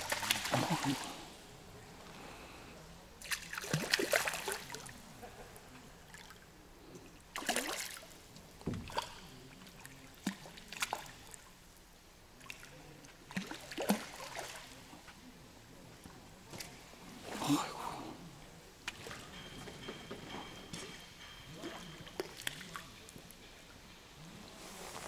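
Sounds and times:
water splashing and dribbling: 0.0 - 1.3, 3.2 - 5.0, 7.3 - 11.4, 13.3 - 14.7, 21.6 - 23.0.

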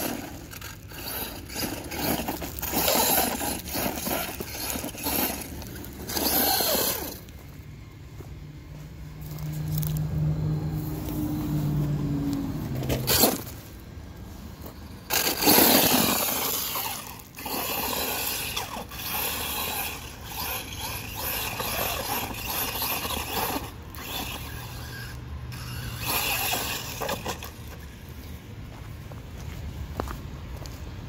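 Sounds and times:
rc truck motor whirring: 0.0 - 7.6, 10.7 - 28.2
tyres scraping gravel: 0.0 - 10.0, 10.8 - 30.9.

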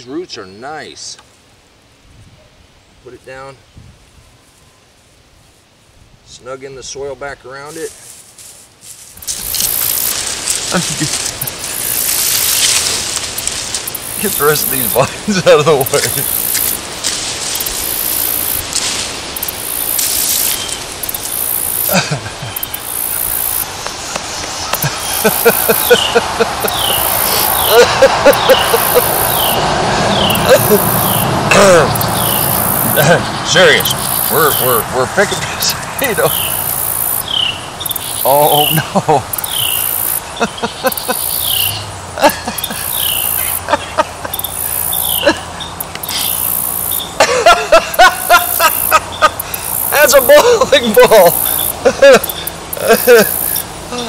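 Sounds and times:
hands scraping through dry mulch: 7.7 - 22.0
insect trilling: 9.2 - 54.0
small crackles and clicks: 16.4 - 21.9
bird down-slurred call: 24.6 - 33.2, 39.4 - 41.9.

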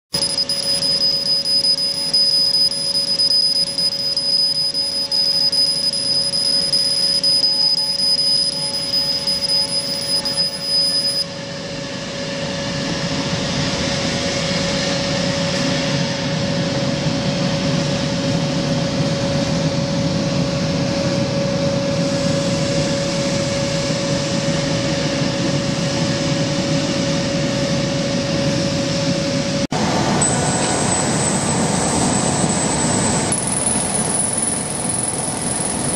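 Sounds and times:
high tone: 0.1 - 11.4
mid-pitched hum: 0.1 - 35.9
thin high whine: 0.1 - 35.9
laser cutter rushing noise: 0.2 - 11.6.

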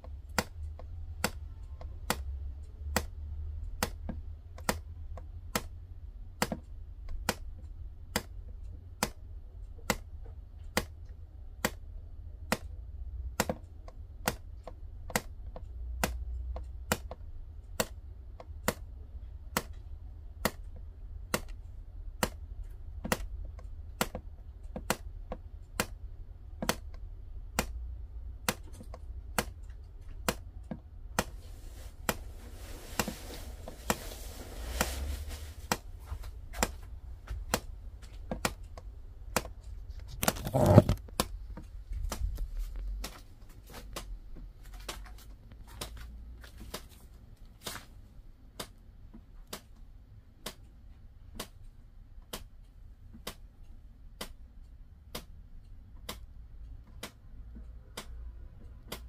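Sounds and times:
soft rustling: 31.3 - 38.3.

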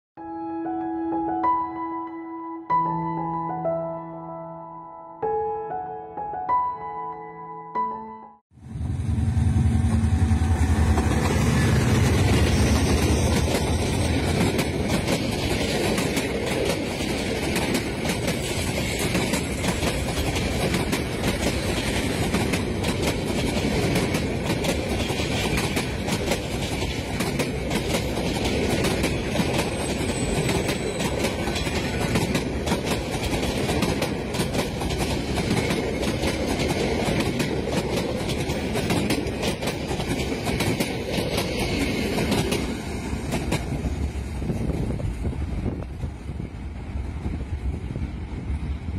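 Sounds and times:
train wheels clacking over rails: 9.6 - 45.2.

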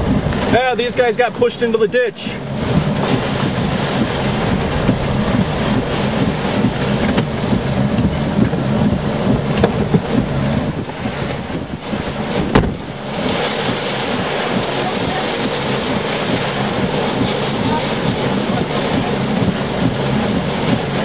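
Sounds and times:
heavy rain lashing a car: 0.0 - 21.0
strong gusting wind: 0.0 - 21.0
wind buffeting the microphone: 0.0 - 21.0
sharp knock: 12.5 - 12.8.

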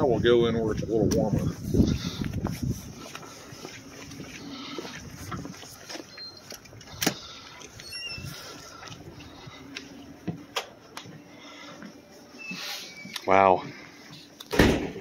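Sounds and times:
brief high squeak: 7.8 - 8.6, 12.4 - 13.3.

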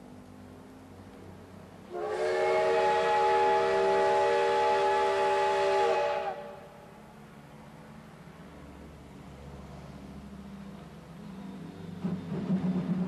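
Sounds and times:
steam locomotive whistle: 1.9 - 6.8.

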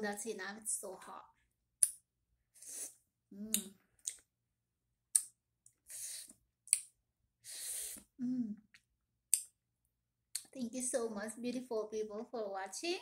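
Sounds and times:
lip and tongue smacks: 5.1 - 7.0
hissing breaths through teeth: 5.8 - 6.4, 7.4 - 8.2.

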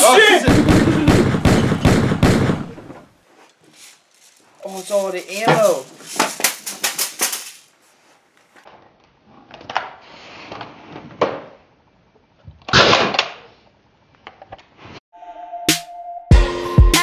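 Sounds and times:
pistol gunshot: 0.5 - 3.0, 12.7 - 13.4.

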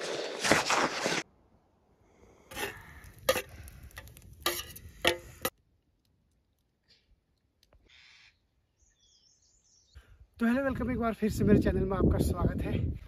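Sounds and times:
knife scraping a steel plate: 4.4 - 5.5.

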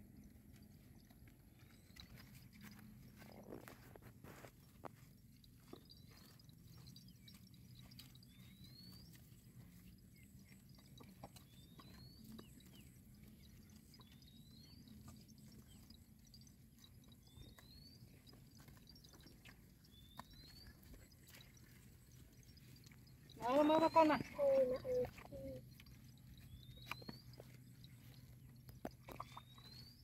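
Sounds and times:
cattle grazing clicks: 0.0 - 30.0.

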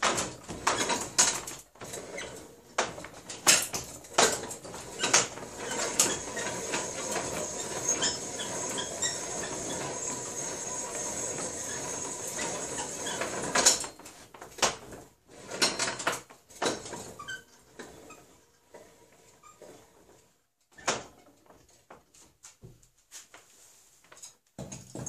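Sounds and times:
reamer scraping inside metal barrel: 4.9 - 13.8.

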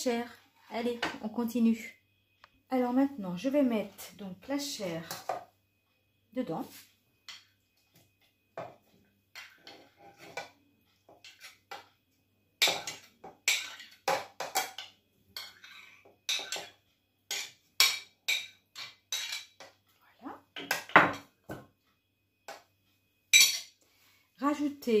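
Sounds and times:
metal spoon clinking on dishes: 12.6 - 19.7, 23.3 - 23.8.

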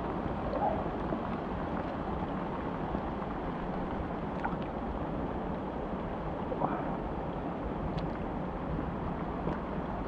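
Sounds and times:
rain falling on pond water: 0.0 - 10.0
water drips and splashes: 0.0 - 10.0.

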